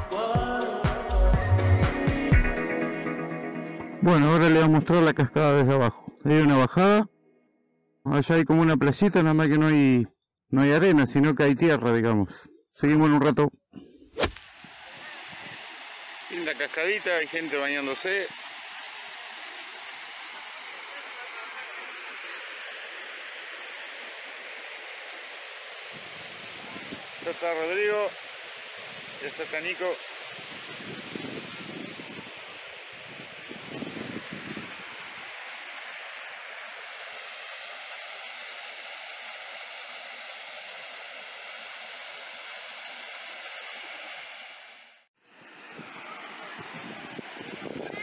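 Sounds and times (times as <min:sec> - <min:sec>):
small waterfall pouring: 0:16.3 - 0:33.5.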